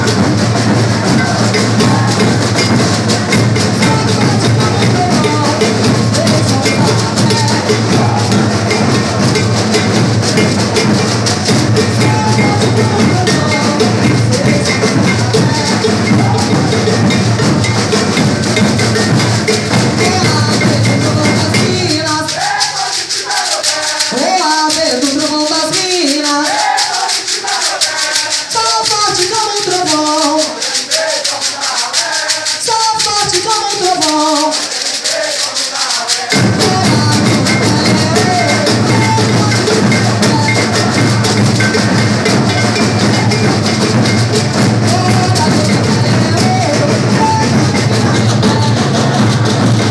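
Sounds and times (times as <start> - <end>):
bass drums pounding: 0.0 - 22.0, 36.4 - 49.9
person singing: 0.0 - 49.9
shakers: 0.0 - 49.9.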